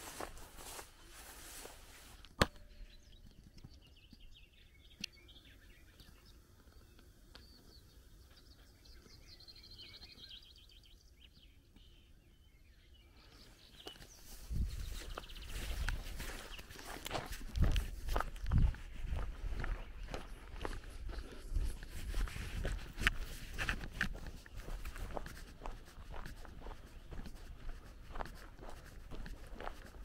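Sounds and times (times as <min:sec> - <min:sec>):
footsteps on grass: 0:00.0 - 0:02.5, 0:13.8 - 0:30.0
songbirds chirping: 0:00.0 - 0:30.0.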